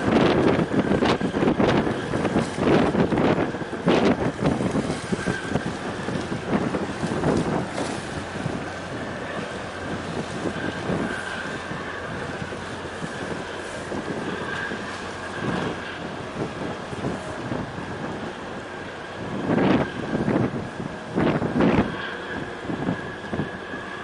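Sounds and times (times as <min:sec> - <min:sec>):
rush of wind: 0:00.0 - 0:24.0
water rushing: 0:00.0 - 0:24.0
wind buffeting microphone: 0:00.0 - 0:24.0.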